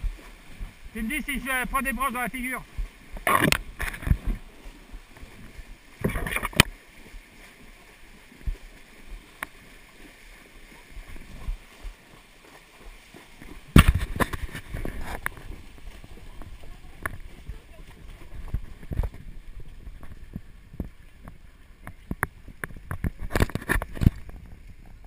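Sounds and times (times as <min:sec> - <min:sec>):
hooves splashing in water: 0:00.0 - 0:25.0
water sloshing: 0:00.0 - 0:25.0.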